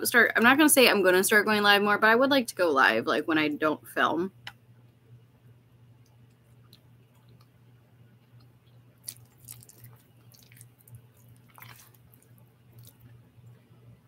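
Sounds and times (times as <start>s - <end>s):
low steady hum: 0.0s - 14.0s
person chewing: 9.0s - 13.1s.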